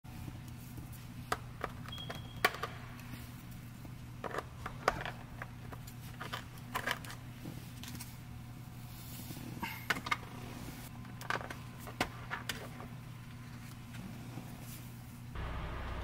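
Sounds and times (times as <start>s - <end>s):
steady low hum: 12.7s - 16.0s.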